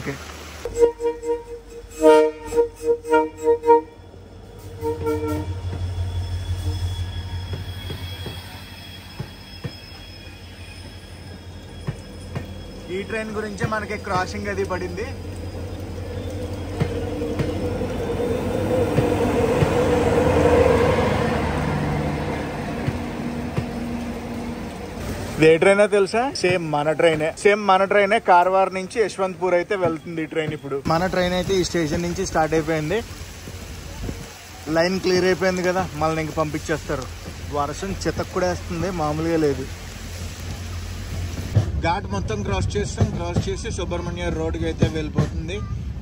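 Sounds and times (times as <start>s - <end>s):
train rumbling past: 0.0s - 46.0s
flute-like background music: 0.7s - 4.0s
faint high wheel squeal: 0.7s - 18.8s.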